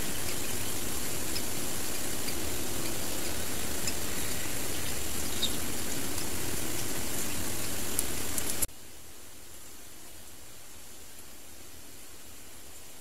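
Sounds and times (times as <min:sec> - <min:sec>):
faint ticks: 0:00.0 - 0:08.7
outdoor background hiss: 0:00.0 - 0:13.0.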